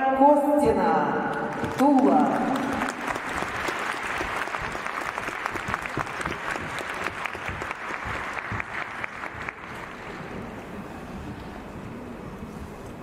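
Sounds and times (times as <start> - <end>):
audience applauding: 1.5 - 10.6.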